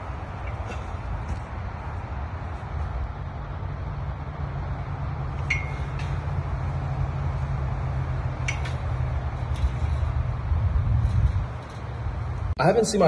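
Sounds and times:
steady low rumble: 0.0s - 12.6s
metal gate latch clinking: 5.4s - 6.2s, 8.4s - 8.9s.

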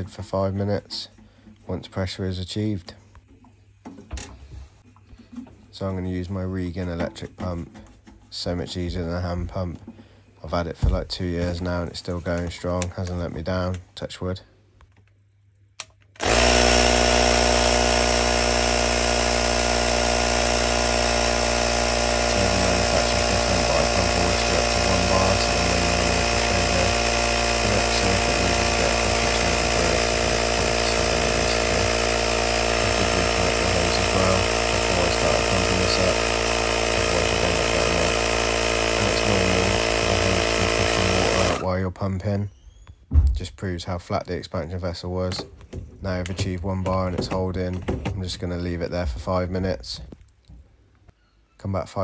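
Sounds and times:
electric pump running: 16.2s - 41.7s.

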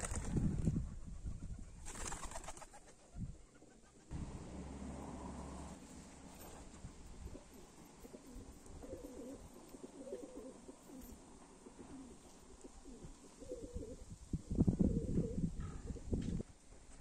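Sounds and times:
pigeons cooing: 7.2s - 16.2s.

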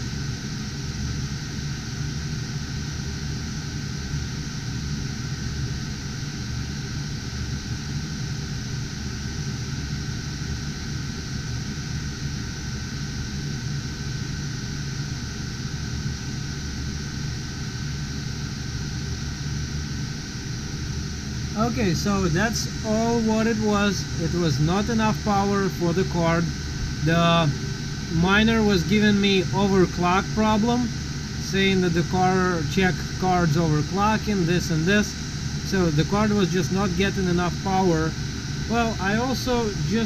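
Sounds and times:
cooling fans whirring: 0.0s - 40.0s
faint thin whine: 0.0s - 40.0s.

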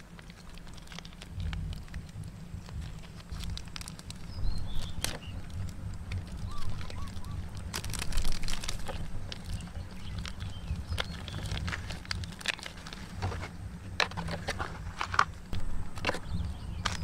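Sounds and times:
low rumble: 0.0s - 17.0s
plastic sachet crinkling: 0.0s - 17.0s
faint bird chirps: 6.4s - 7.5s.

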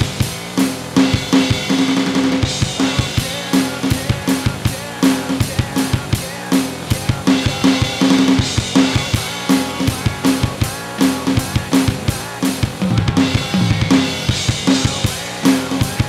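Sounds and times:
fast rock drumming: 0.0s - 16.0s
rock backing track: 0.0s - 16.0s.

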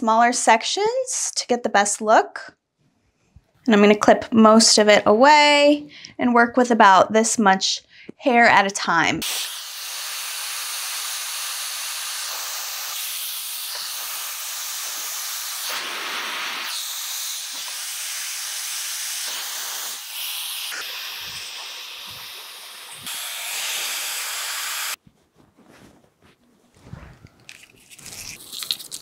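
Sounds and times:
hair dryer blowing: 9.2s - 25.0s.

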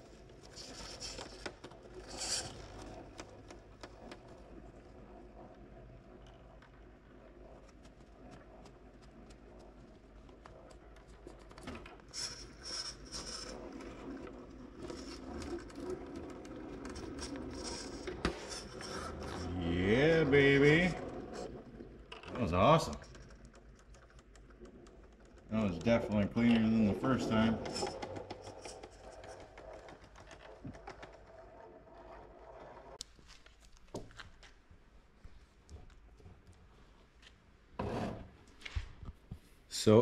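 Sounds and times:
toy car scraping on rocks: 2.0s - 2.8s, 12.1s - 14.2s, 16.8s - 21.0s.

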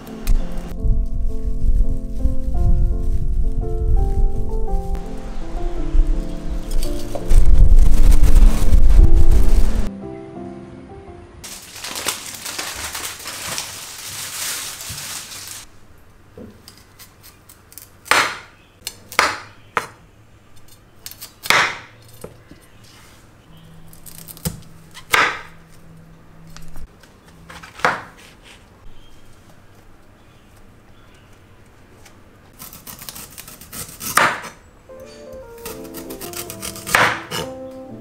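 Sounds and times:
knife chopping on cutting board: 27.5s - 28.3s, 34.0s - 34.6s, 35.6s - 37.5s.

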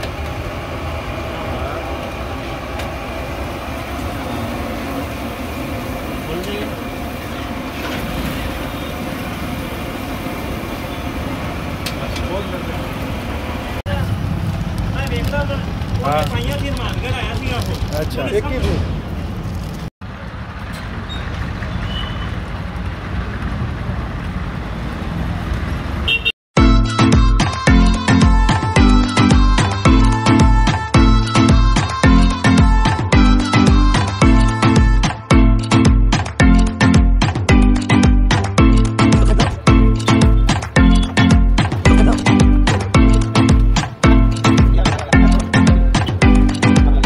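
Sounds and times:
gas burner rushing: 0.0s - 19.9s
passing traffic rumble: 0.0s - 26.4s, 27.9s - 47.0s.

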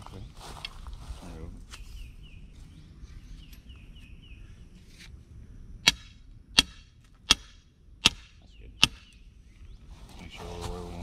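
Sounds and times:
sledgehammer striking metal stake: 5.8s - 9.1s.

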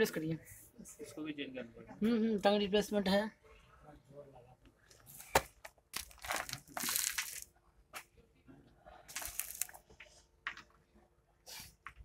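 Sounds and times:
footsteps crunching on stones: 5.4s - 7.4s, 9.1s - 9.8s.

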